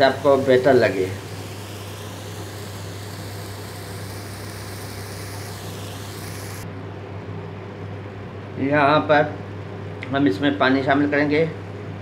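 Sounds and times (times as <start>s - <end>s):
even hiss: 0.0s - 6.6s.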